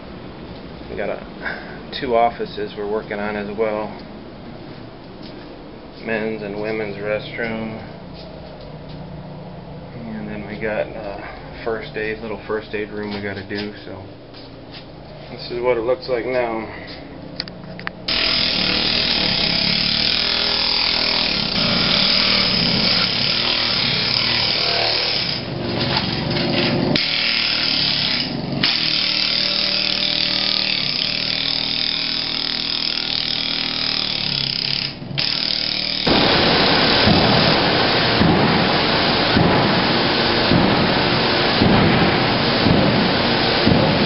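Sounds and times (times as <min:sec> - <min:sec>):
power floor scraper chipping tile: 0:18.1 - 0:44.0
loud even rushing noise: 0:36.1 - 0:44.0.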